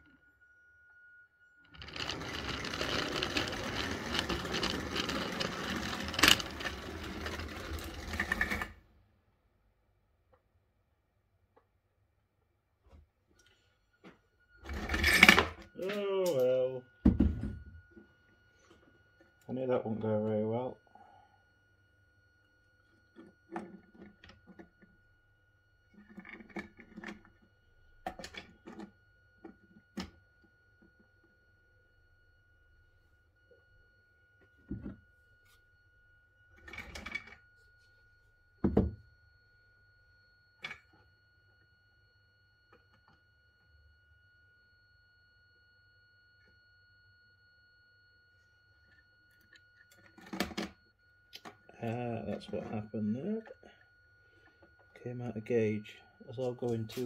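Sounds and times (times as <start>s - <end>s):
model wagons clicking and clattering: 1.8s - 8.7s.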